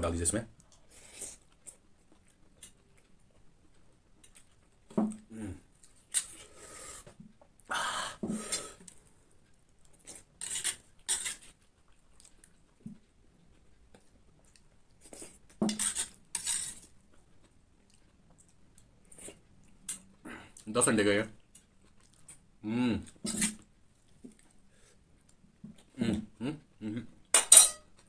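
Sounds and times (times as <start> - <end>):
metal spoon scraping steel plate: 10.4 - 11.4, 15.7 - 16.8, 27.4 - 27.9.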